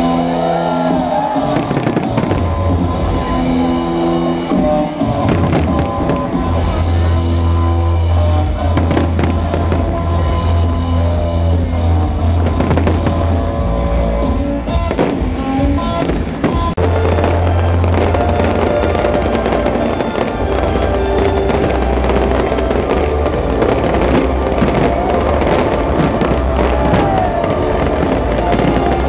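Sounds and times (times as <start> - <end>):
fireworks bangs and crackles: 0.0 - 29.0
music: 0.0 - 29.0.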